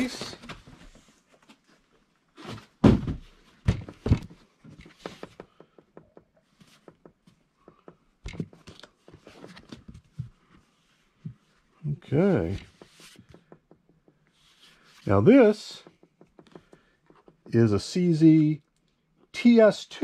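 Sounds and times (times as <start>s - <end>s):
plastic case thunks: 2.8s - 4.4s.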